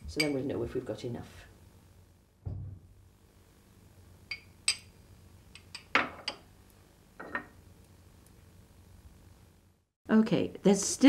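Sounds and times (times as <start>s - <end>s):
glassware and ceramic plate clinking: 7.2s - 7.6s.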